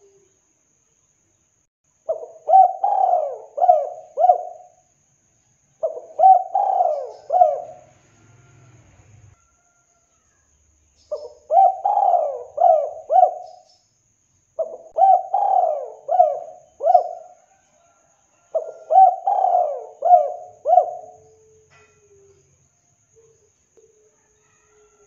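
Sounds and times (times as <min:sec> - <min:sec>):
dove cooing: 0:02.1 - 0:04.8, 0:05.8 - 0:08.0, 0:11.1 - 0:13.7, 0:14.6 - 0:17.6, 0:18.5 - 0:22.4.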